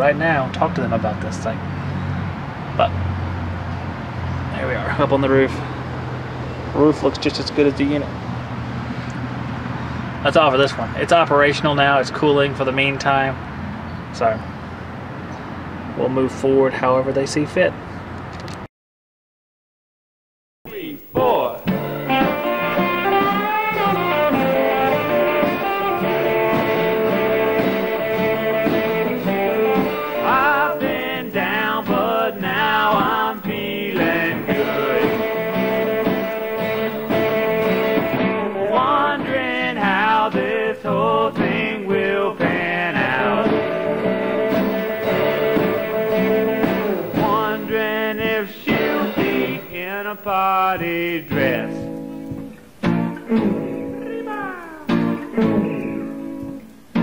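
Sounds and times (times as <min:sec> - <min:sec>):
guitar and band accompaniment: 0:20.7 - 0:38.4, 0:43.4 - 0:57.0
person singing: 0:20.7 - 0:51.9, 0:53.3 - 0:55.6.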